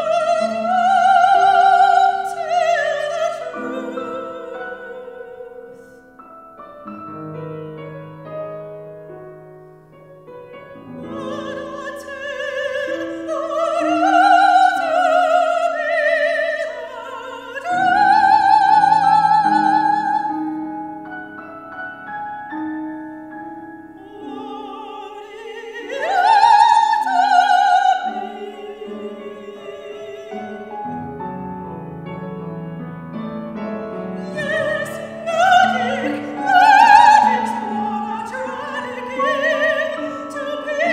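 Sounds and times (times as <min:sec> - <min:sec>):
operatic soprano singing: 0:00.0 - 0:06.1, 0:10.6 - 0:21.0, 0:23.8 - 0:31.5, 0:33.8 - 0:40.9
grand piano: 0:00.0 - 0:40.9.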